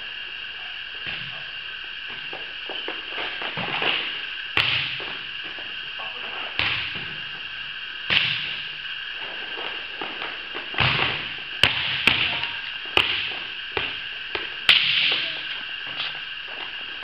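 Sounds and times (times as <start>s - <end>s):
steady background hum: 0.0s - 17.0s
volleyball slaps echoing: 4.6s - 5.2s, 6.6s - 7.4s, 8.1s - 8.8s, 10.7s - 15.4s.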